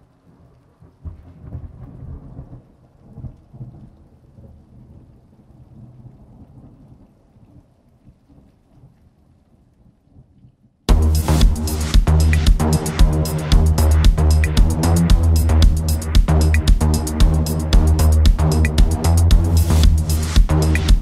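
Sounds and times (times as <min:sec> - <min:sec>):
thunder rumbling: 0:00.0 - 0:07.3
steady rain: 0:00.0 - 0:21.0.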